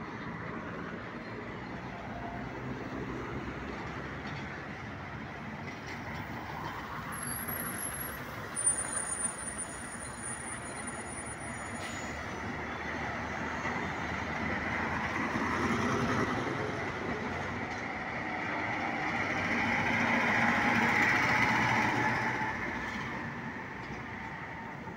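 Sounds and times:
heavy trucks driving past: 0:00.0 - 0:24.9.

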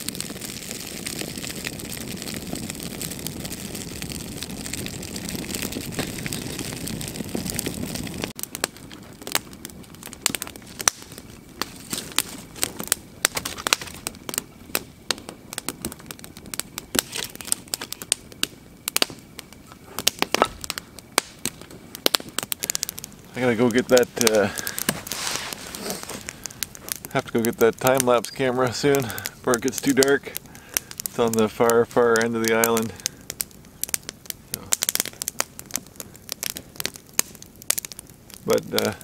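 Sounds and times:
campfire crackling and popping: 0:00.0 - 0:39.0
campfire flames rushing: 0:00.0 - 0:39.0.

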